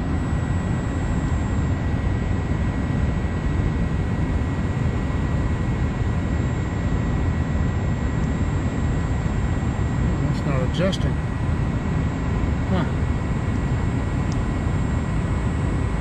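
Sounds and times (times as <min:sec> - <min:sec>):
furnace burner and fans rumbling: 0:00.0 - 0:16.0.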